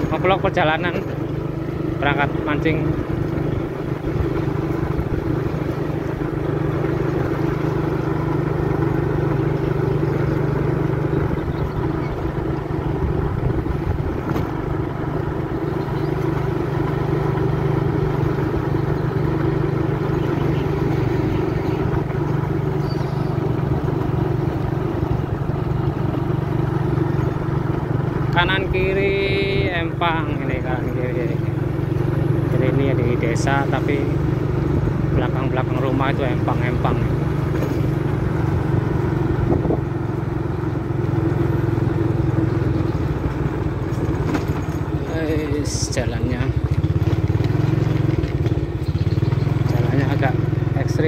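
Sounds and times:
road noise: 0.0 - 51.0
vehicle engine humming: 0.0 - 51.0
wind noise: 39.4 - 39.9.

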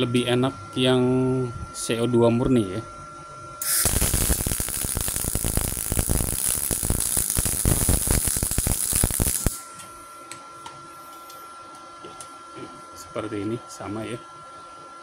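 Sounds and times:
welding arc crackling: 3.6 - 9.6.

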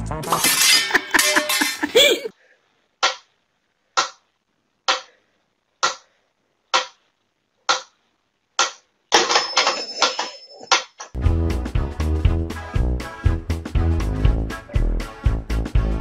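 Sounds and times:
music with a steady beat: 11.2 - 16.0.

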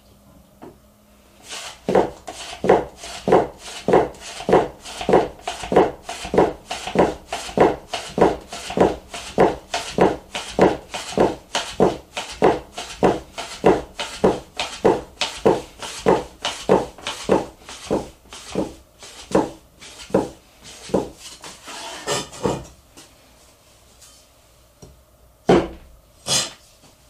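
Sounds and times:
knife chopping on wooden board: 1.9 - 21.2, 25.5 - 26.5.

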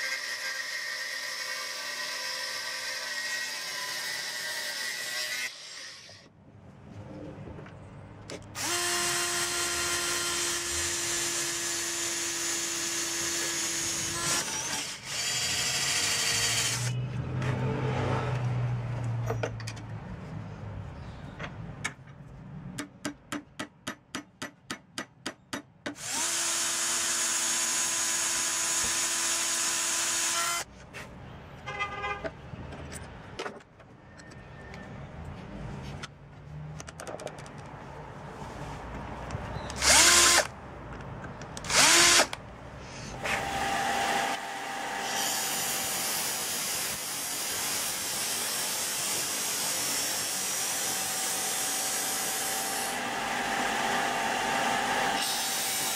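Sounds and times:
power drill drilling: 8.6 - 16.9, 26.0 - 30.7, 39.8 - 40.5, 41.6 - 42.4, 43.2 - 55.9.

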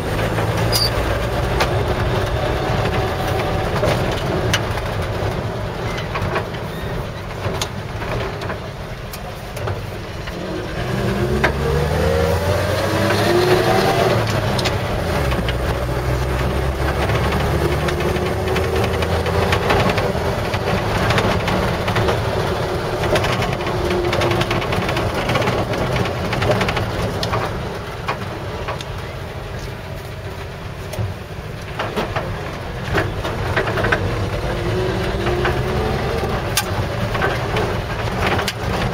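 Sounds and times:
road noise: 0.0 - 38.9
truck engine accelerating: 0.0 - 38.9.

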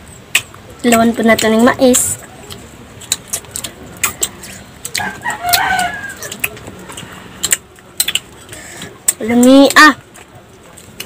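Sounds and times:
rooster crowing: 5.0 - 6.4.

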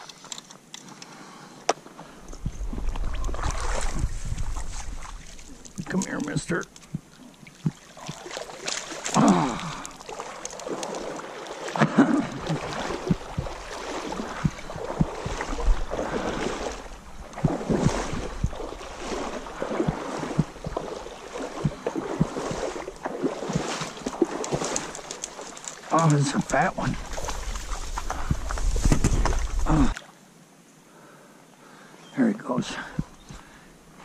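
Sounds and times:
water sloshing and splashing: 2.0 - 30.2
knocks and swishes: 12.5 - 29.7.

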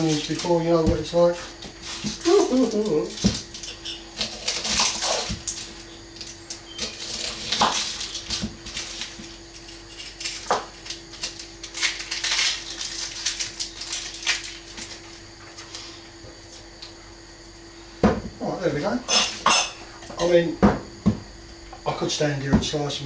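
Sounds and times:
onion skin crackling: 0.0 - 15.8
faint steady hum: 0.0 - 23.0
knocks on wooden chopping board: 18.0 - 18.4, 20.6 - 21.2.

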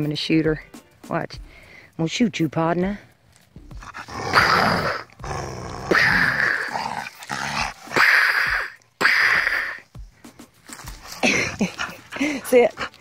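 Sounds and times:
dog play-growling: 3.7 - 8.6, 11.0 - 13.0.

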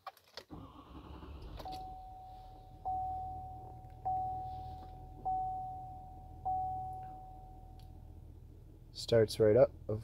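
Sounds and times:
low hum: 1.2 - 8.9
warning chime dinging: 1.7 - 7.8.

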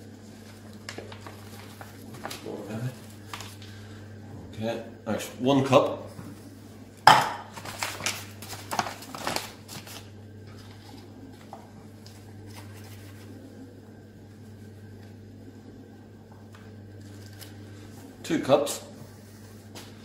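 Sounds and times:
low steady hum: 0.0 - 20.0
paper bag rustling: 0.2 - 4.0, 7.5 - 13.6.

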